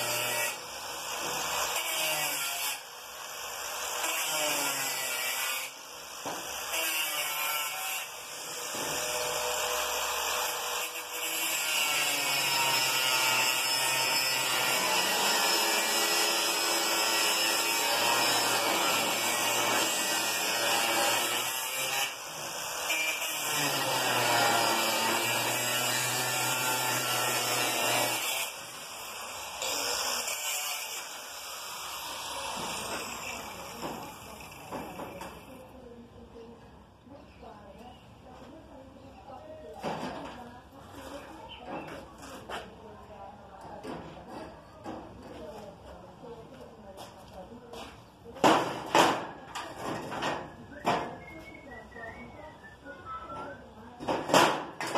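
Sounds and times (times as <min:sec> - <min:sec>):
angle grinder cutting steel: 0:00.0 - 0:34.7.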